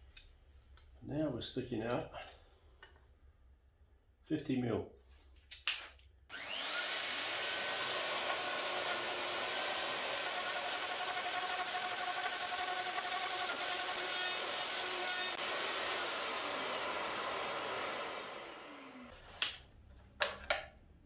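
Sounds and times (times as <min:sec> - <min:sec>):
dust extractor hissing: 0:06.3 - 0:19.1
plunge router running: 0:06.3 - 0:19.1.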